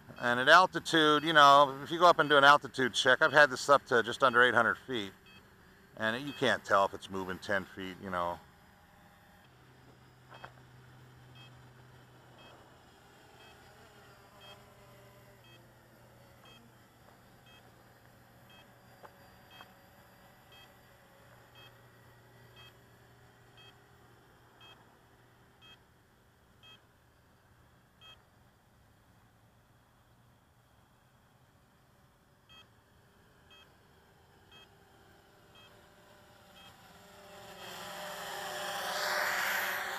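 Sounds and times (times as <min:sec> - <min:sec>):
low steady hum: 0:00.0 - 0:39.9
faint two-tone electronic beeps: 0:00.1 - 0:07.4, 0:10.0 - 0:10.6, 0:11.3 - 0:11.6, 0:12.4 - 0:15.7, 0:16.4 - 0:16.8, 0:17.4 - 0:17.8, 0:18.4 - 0:20.9, 0:21.5 - 0:21.9, 0:22.5 - 0:22.8, 0:23.5 - 0:23.8, 0:24.6 - 0:24.8, 0:25.6 - 0:25.9, 0:26.6 - 0:26.9, 0:28.0 - 0:28.3, 0:32.4 - 0:32.8, 0:33.4 - 0:33.9, 0:34.5 - 0:37.3.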